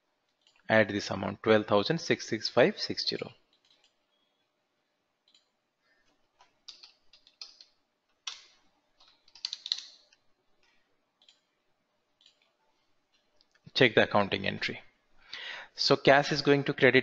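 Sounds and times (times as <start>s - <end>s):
computer keyboard typing: 3.5s - 4.3s, 6.4s - 11.5s.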